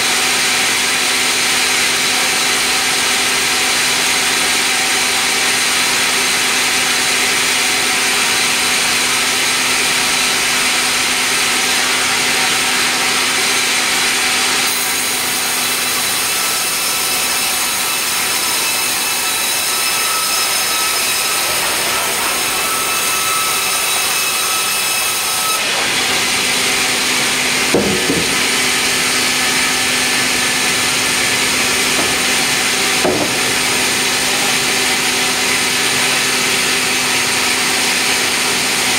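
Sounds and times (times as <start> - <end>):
band saw cutting log: 0.0 - 38.9
wooden knocks: 27.7 - 28.7, 31.8 - 33.7.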